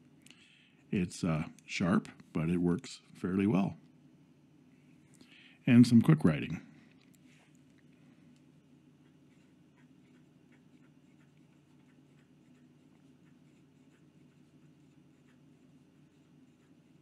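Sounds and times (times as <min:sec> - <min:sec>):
pen nib scratching on paper: 0:08.7 - 0:17.0.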